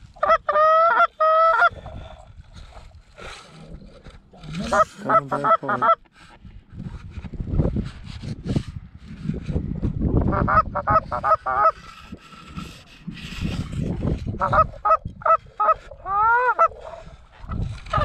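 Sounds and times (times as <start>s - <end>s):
goose honking and clucking: 0.0s - 1.8s, 4.4s - 6.1s, 10.2s - 12.7s, 14.1s - 18.0s
wind rumble on microphone: 1.6s - 4.9s, 6.3s - 18.0s.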